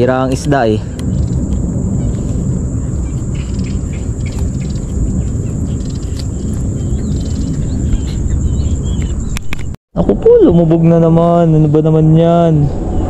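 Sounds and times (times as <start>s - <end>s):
small birds chirping: 0.0s - 9.8s
wind buffeting microphone: 0.0s - 13.0s.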